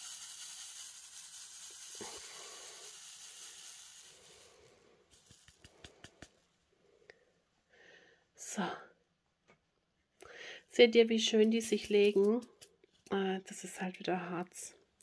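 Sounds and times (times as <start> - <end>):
plastic beads rattling in a tray: 0.0 - 6.3, 11.3 - 12.7.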